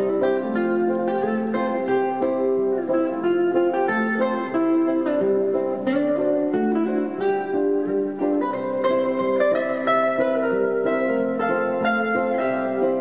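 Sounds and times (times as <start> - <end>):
acoustic guitar picking: 0.0 - 13.0.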